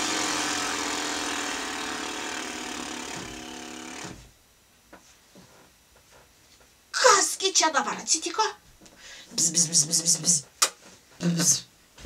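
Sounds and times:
lip-buzzing engine imitation: 0.0 - 4.2.

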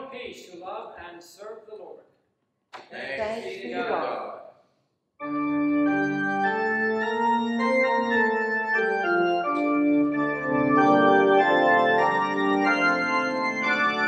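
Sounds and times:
organ playing sustained chords: 5.2 - 14.0.

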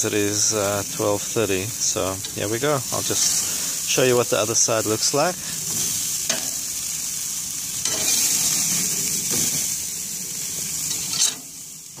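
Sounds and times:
burgers sizzling on grill: 0.0 - 12.0
metal spatula scraping grate: 7.8 - 9.8, 10.8 - 11.5.

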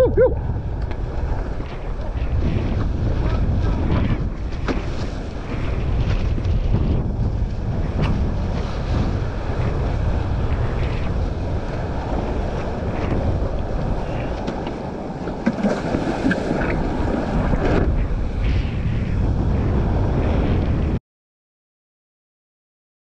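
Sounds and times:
wind buffeting microphone: 0.0 - 21.0
water rushing and splashing: 0.6 - 18.8.

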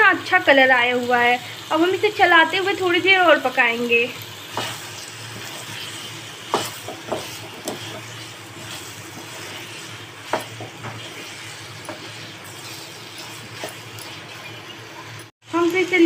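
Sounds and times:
chicken sizzling: 0.0 - 16.0
spatula scraping and knocking pan: 4.4 - 15.3.

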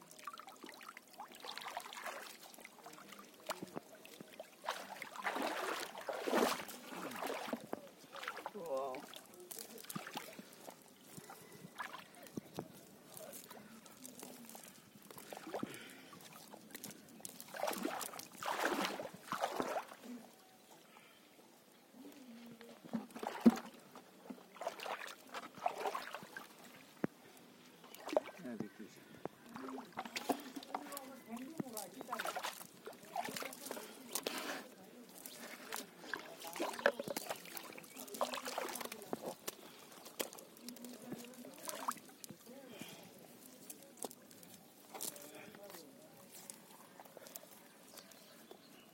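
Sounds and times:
fish slapping on wet mud: 1.3 - 10.8, 11.8 - 12.4, 14.0 - 20.0, 24.6 - 26.5, 30.0 - 43.0.

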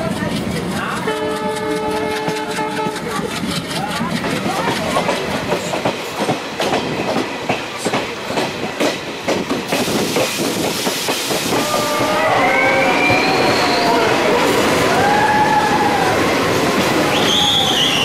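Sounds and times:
train wheels clicking over rails: 0.0 - 18.0
train wheels squealing: 12.3 - 14.4, 17.0 - 18.0.

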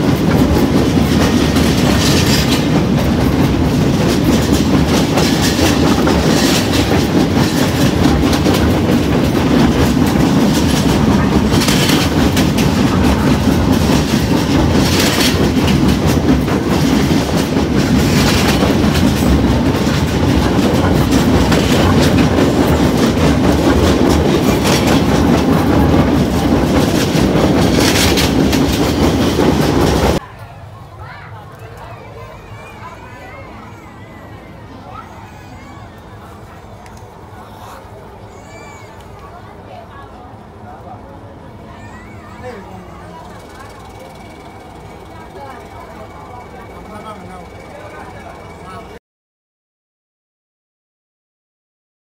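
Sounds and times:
train wheels clattering: 0.0 - 30.2, 41.8 - 49.0
train rumbling on rails: 0.0 - 49.0.

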